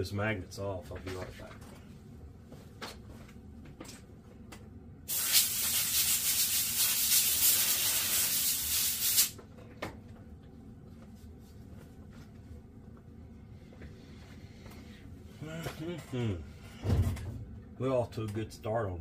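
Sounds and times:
compressed air hissing: 5.1 - 9.4.

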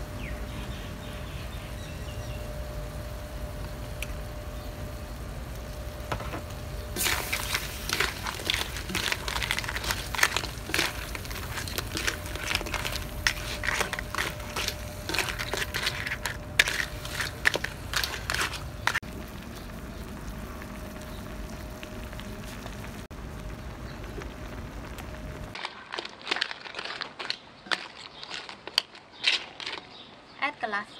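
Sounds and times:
sauce sizzling and bubbling: 0.7 - 30.1
crab shells clattering in wok: 7.0 - 19.0, 25.6 - 30.2
spatula scraping wok: 7.0 - 19.0, 25.6 - 30.1.

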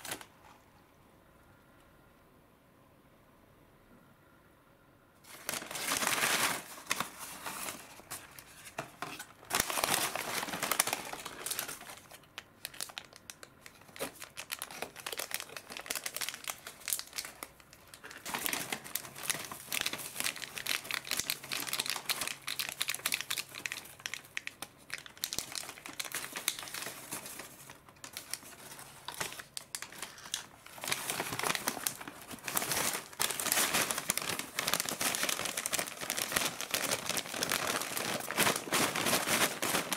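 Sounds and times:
packaging crinkling: 0.0 - 0.6, 5.3 - 39.9
paper bag shaken and crumpled: 5.3 - 8.3, 9.5 - 12.1, 30.0 - 39.9
foil packet tearing: 5.3 - 8.4, 9.4 - 39.9.

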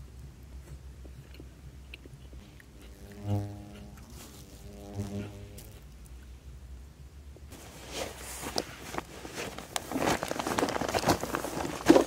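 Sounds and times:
rustling inside nylon tent: 7.5 - 12.0.

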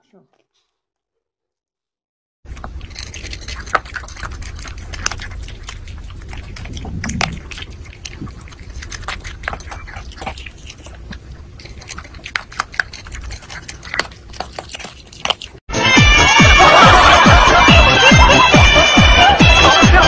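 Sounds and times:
dog crunching dry kibble: 2.5 - 15.7.

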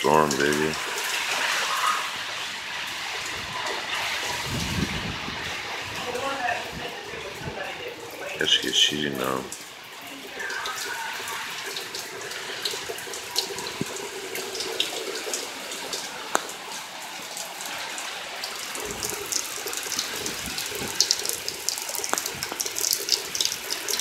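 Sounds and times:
drips and splashes: 0.0 - 24.0
heavy rain: 0.0 - 24.0.

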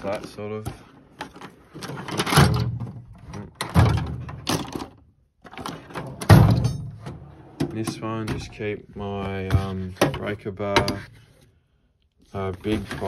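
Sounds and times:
knocks and clatters: 0.0 - 8.7
metal drawers sliding: 0.8 - 8.7.

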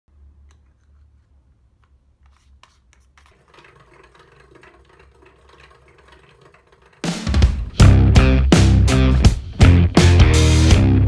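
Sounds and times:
hand drill gears rattling: 3.1 - 8.1.

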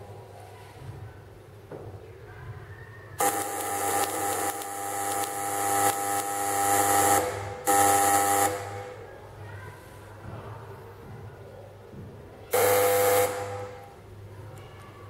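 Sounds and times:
tesla coil spark buzzing: 3.2 - 9.1, 12.6 - 14.0.

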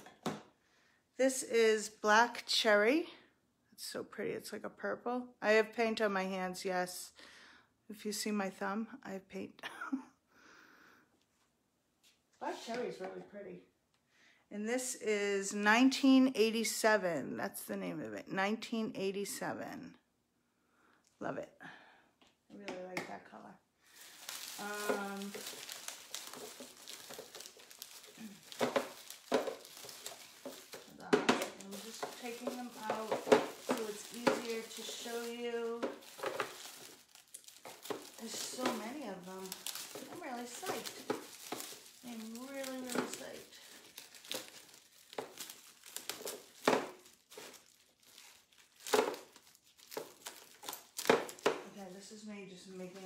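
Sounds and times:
packing material crinkling: 23.4 - 53.0
hands rummaging in cardboard box: 24.0 - 52.0.

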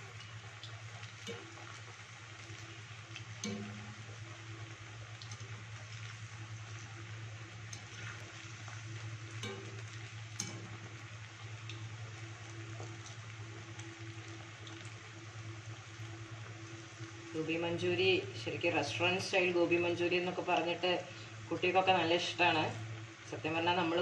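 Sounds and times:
food sizzling in hot oil: 0.0 - 24.0
steady low hum: 0.0 - 24.0
skimmer clicking against pan: 0.1 - 1.8, 3.2 - 4.3, 9.2 - 11.1.

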